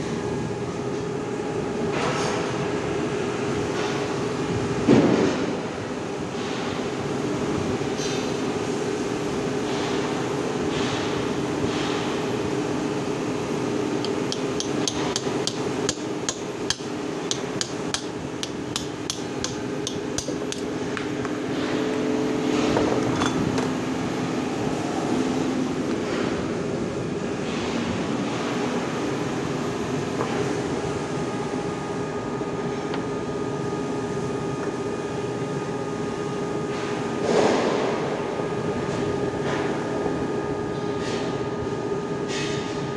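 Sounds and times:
workshop machinery humming: 0.0 - 42.9
hammer tapping on metal: 14.0 - 20.7.

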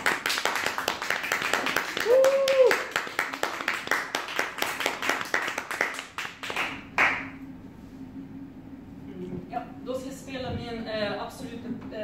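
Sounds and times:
small audience clapping: 0.0 - 7.4.

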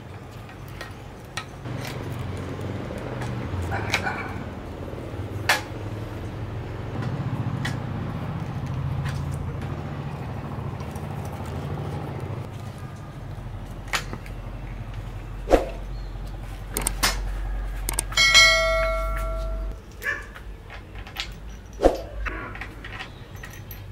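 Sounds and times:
steady low hum: 14.3 - 20.6
metal parts clicking and knocking: 17.8 - 23.9
bell chime: 18.1 - 19.8.

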